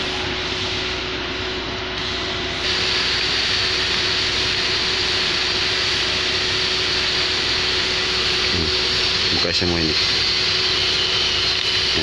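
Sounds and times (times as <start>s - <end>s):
machine humming and hissing: 0.0s - 12.0s.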